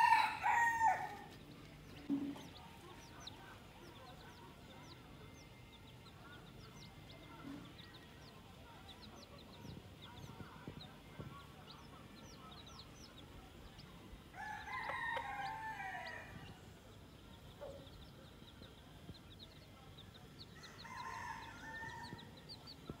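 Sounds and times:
rooster crowing: 0.0 - 1.2, 14.4 - 16.4, 20.6 - 22.2
chicks peeping: 0.0 - 23.0.

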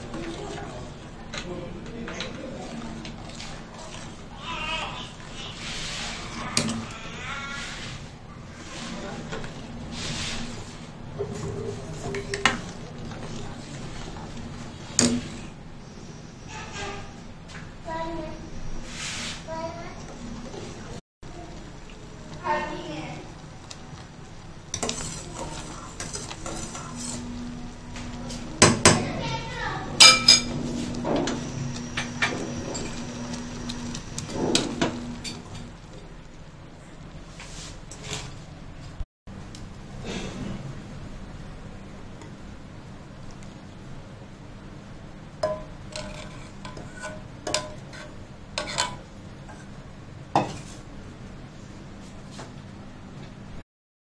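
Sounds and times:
steady low hum: 20.2 - 37.3
spoon stirring ketchup in saucepan: 23.3 - 27.4, 45.4 - 49.6
spoon scraping a saucepan: 24.7 - 27.4, 30.0 - 35.7, 45.9 - 49.7
spoon clanking on pan: 30.0 - 30.5, 45.4 - 49.0.

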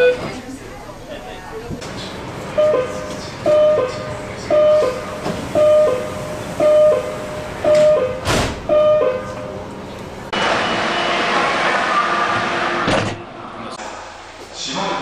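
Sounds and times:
door warning beeps: 0.0 - 0.4, 2.6 - 9.3
doors shutting thump: 7.7 - 8.7.

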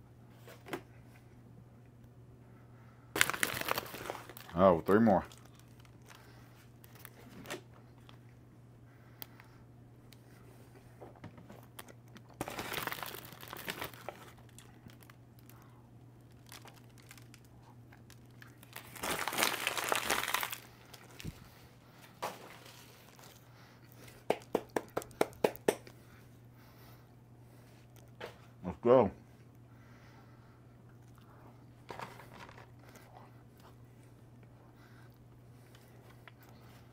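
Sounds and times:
plastic wrappers crinkling and tearing: 3.2 - 8.2, 11.6 - 15.6, 16.2 - 21.5.

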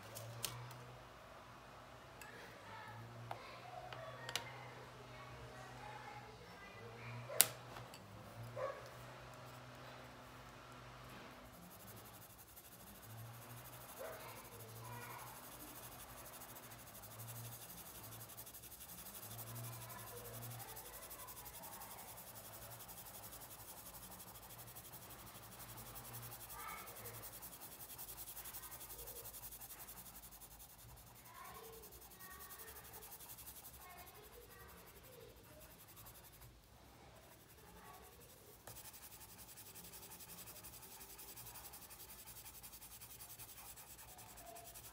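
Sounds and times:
pencil scratching on paper: 8.6 - 44.9.

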